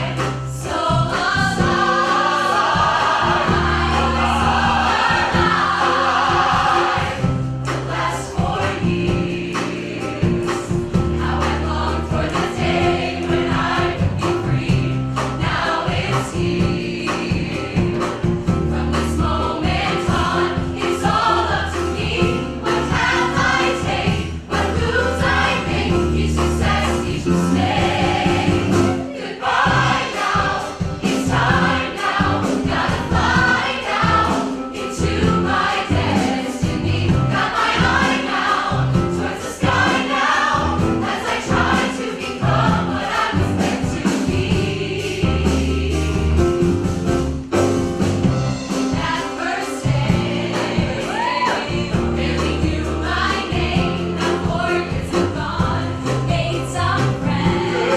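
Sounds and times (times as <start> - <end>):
bass notes: 0.0 - 34.4, 51.8 - 57.9
choir singing gospel: 0.0 - 46.8, 47.5 - 57.9
drums beat: 0.0 - 57.9
piano: 0.0 - 57.9.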